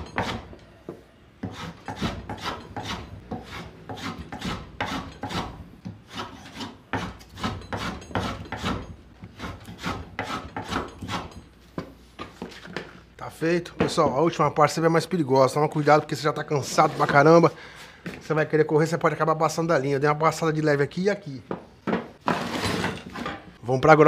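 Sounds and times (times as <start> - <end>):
hand plane shaving wood: 1.4 - 5.5, 6.1 - 11.3.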